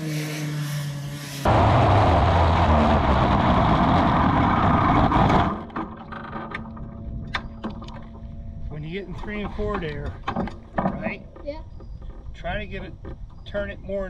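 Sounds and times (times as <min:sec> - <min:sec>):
race car engine rasping: 0:00.0 - 0:05.8.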